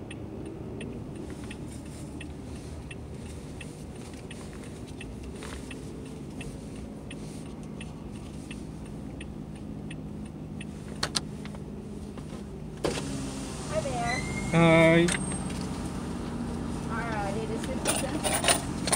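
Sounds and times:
car engine and road noise: 0.0 - 18.9
faint ticks: 0.1 - 10.8.

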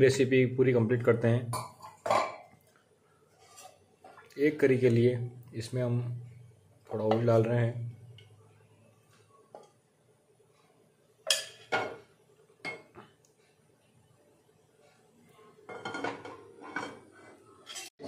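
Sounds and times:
metal pots and utensils clattering: 1.5 - 2.6, 11.2 - 13.0, 15.6 - 18.0.

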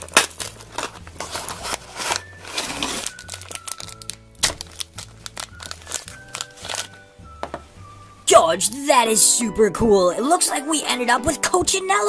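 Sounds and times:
foil packaging crackling: 0.0 - 7.0
background music: 0.0 - 12.0.

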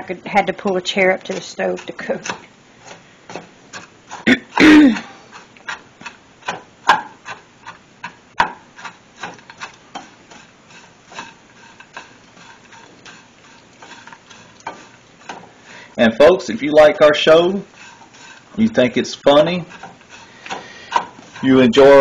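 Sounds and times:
spatula scraping a frying pan: 0.0 - 22.0
spatula knocking against pan: 5.7 - 10.1, 19.7 - 21.4.

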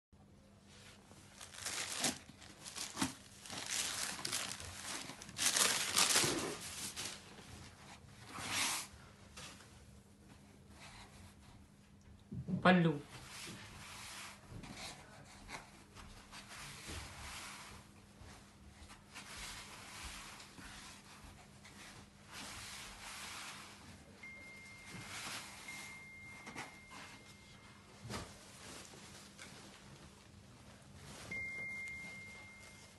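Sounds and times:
fabric rustling and crinkling: 0.7 - 8.6, 15.8 - 32.9.

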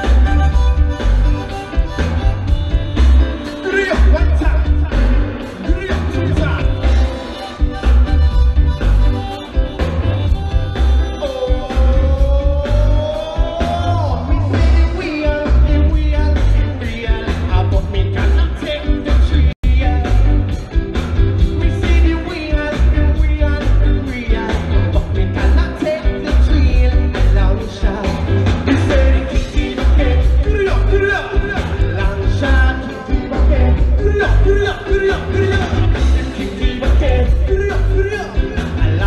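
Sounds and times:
live ska band playing: 0.0 - 39.0
person singing: 10.8 - 20.5, 21.4 - 39.0.

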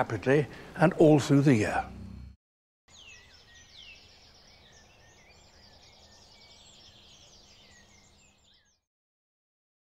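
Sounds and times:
steady low hum: 0.0 - 2.4
chirps and whistled calls: 2.9 - 8.9.

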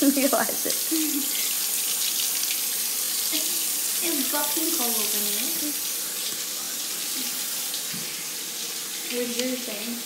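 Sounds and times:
tap running into sink: 7.7 - 8.3.

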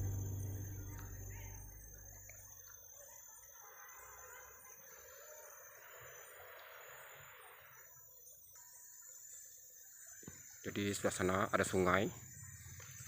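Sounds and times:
background music: 0.0 - 1.8
faint forest background hiss: 0.0 - 13.0.

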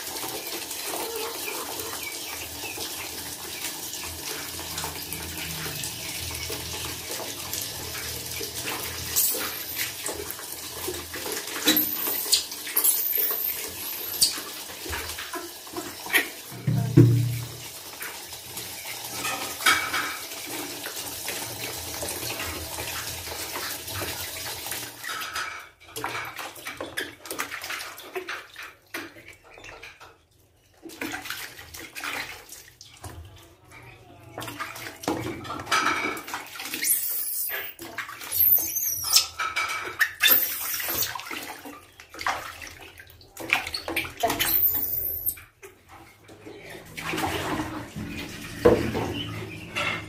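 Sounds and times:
water splashing in a plastic basin: 0.0 - 50.0
high-pitched squeaks: 9.1 - 9.9, 11.7 - 14.4, 36.8 - 39.3, 40.2 - 41.1, 44.3 - 45.4.

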